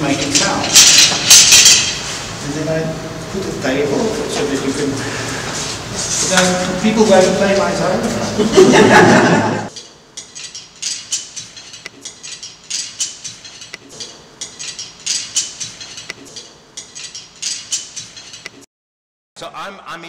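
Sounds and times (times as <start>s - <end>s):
man's voice: 19.4s - 20.0s.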